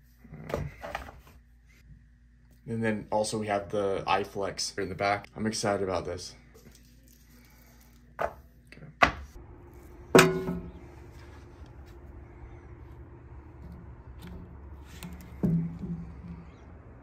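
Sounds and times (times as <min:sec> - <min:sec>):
ringing metallic clank: 0:10.2 - 0:10.8.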